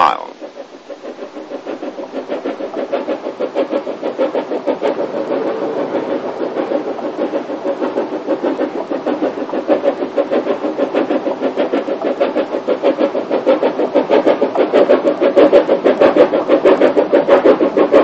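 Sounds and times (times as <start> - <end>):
steam locomotive exhaust beating: 0.0 - 18.0.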